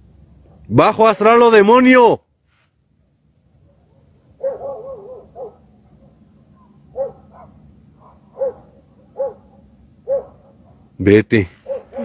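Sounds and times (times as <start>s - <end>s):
dog barking: 0.4s - 0.7s, 3.6s - 10.9s, 11.6s - 12.0s
dog yelping: 3.7s - 10.9s, 11.6s - 12.0s.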